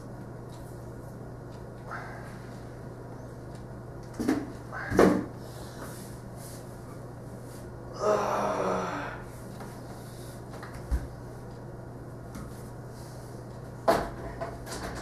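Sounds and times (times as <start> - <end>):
steady low hum: 0.0 - 15.0
person's strained breathy vocal: 7.9 - 9.3.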